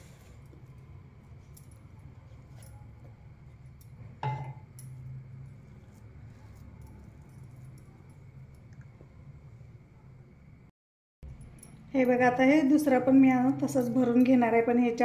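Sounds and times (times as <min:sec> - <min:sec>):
low kitchen hum: 0:00.0 - 0:15.0
sharp ringing clink: 0:11.2 - 0:12.5.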